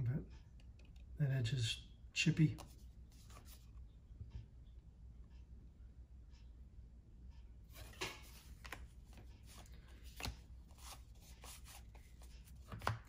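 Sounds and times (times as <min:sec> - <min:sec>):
cards flicking and slapping: 0:08.2 - 0:13.0.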